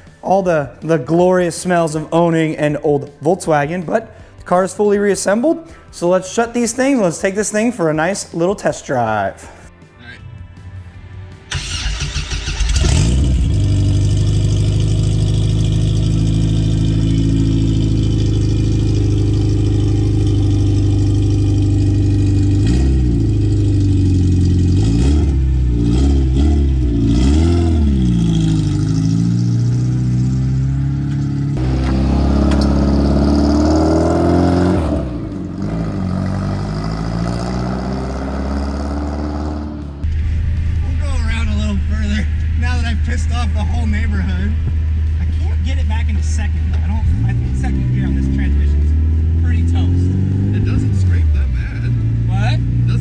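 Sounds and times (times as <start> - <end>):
car engine idling and revving: 11.5 - 53.0
car pulling away: 11.5 - 53.0.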